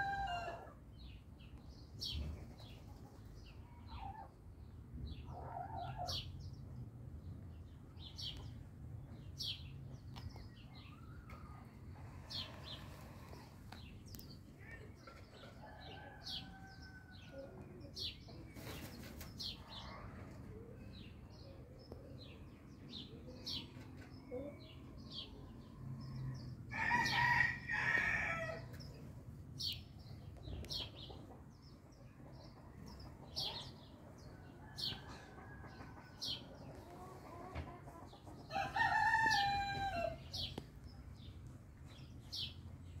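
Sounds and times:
hen clucking: 35.1 - 38.4
rooster crowing: 38.5 - 40.2.

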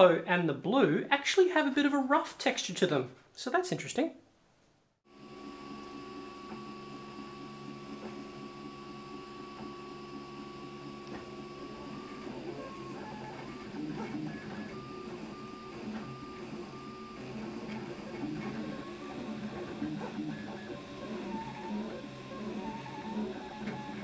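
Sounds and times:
motor and fan hum: 5.1 - 24.0
stepper motors whining: 5.2 - 24.0.

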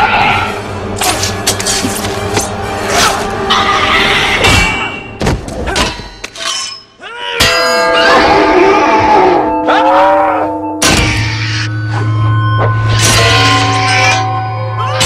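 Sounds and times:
film soundtrack music: 0.0 - 15.0
metal pipes ringing: 5.7 - 15.0.

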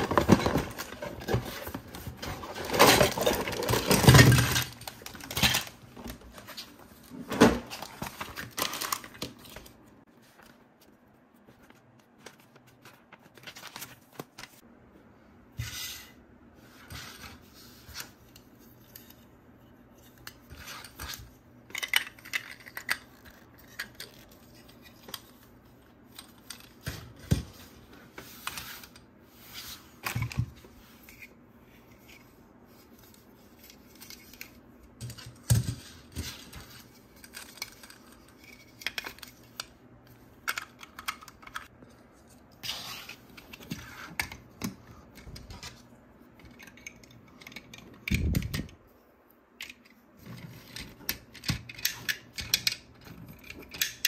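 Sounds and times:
plastic pieces clicking and tapping: 50.6 - 54.0.

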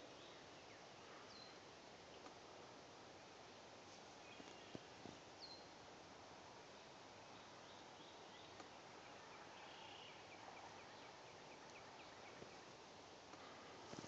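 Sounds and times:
faint steady hiss: 0.0 - 14.0
bird chirping: 4.2 - 5.8, 7.2 - 12.8
faint ticks: 11.6 - 14.0.

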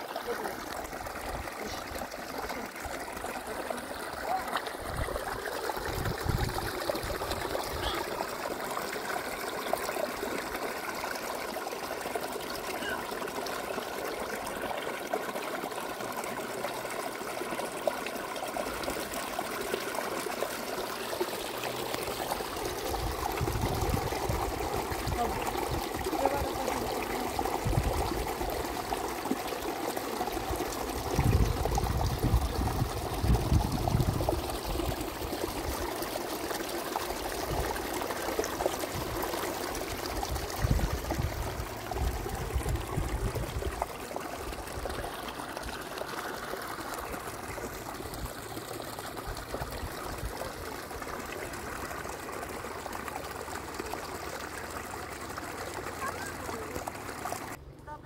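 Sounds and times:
water trickling: 0.0 - 57.6.

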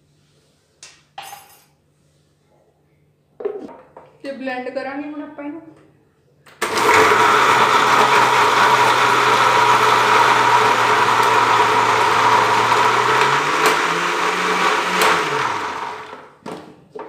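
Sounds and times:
electric blender running: 6.6 - 16.3.

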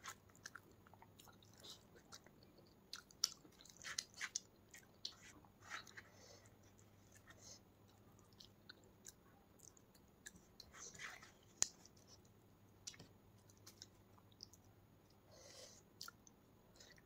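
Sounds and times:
close-up chewing: 0.0 - 11.9
small clicks of food mixed by hand: 6.7 - 15.2.

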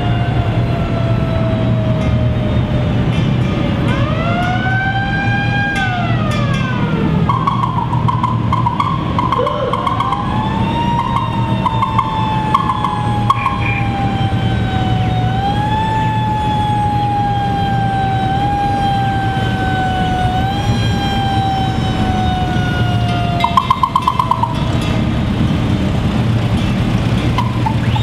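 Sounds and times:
mechanical siren wailing: 0.0 - 3.1, 3.8 - 25.0, 27.3 - 28.0
engines running low: 0.0 - 28.0.

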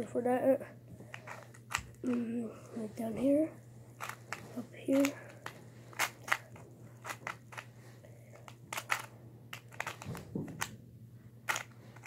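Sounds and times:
faint steady hum: 0.0 - 12.0
puzzle cube plastic clicking: 4.0 - 7.7, 8.3 - 10.8, 11.5 - 12.0.

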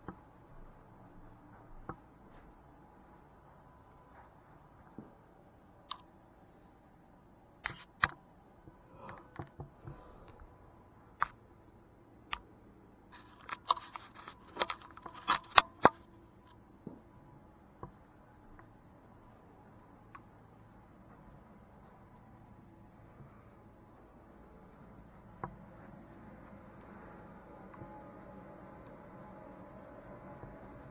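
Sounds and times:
faint steady tone: 0.0 - 30.9.

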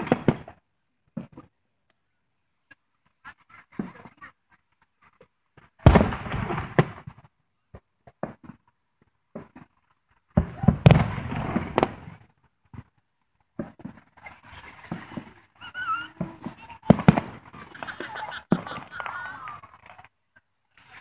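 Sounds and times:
fireworks popping and crackling: 0.0 - 0.6, 3.5 - 21.0
loud firework bang: 5.8 - 7.1, 10.4 - 12.2, 16.2 - 18.9.

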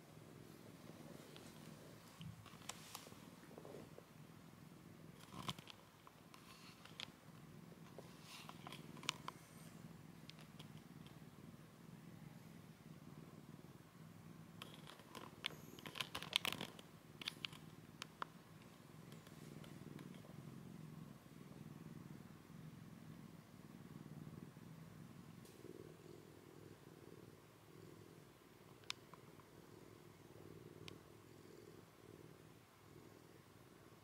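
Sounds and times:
cat purring softly: 0.0 - 34.0
crackling clicks and rustles from handling: 1.2 - 4.0, 5.2 - 9.6, 10.2 - 11.2, 14.6 - 20.4, 28.7 - 29.5.

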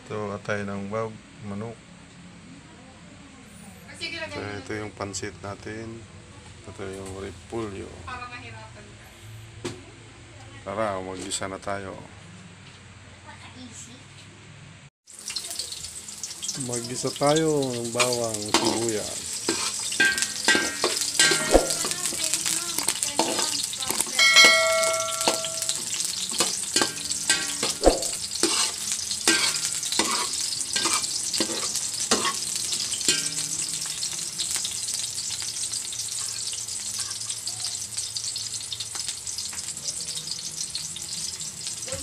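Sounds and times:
garlic and onion sizzling in oil: 15.0 - 42.0
metal ladle scraping wok: 17.9 - 35.4
metal clang: 20.0 - 21.9, 24.2 - 28.6.

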